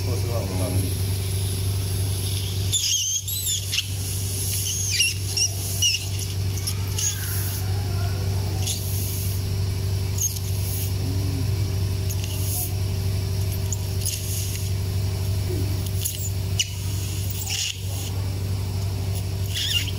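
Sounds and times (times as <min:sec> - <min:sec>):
steady low hum: 0:00.0 - 0:19.9
high squeaky chirps: 0:02.1 - 0:09.2, 0:10.2 - 0:10.7, 0:16.0 - 0:18.1, 0:19.4 - 0:19.9.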